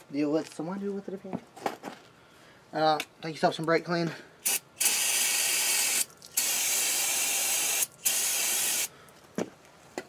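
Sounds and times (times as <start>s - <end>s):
aerosol spray bursts: 4.4s - 8.9s.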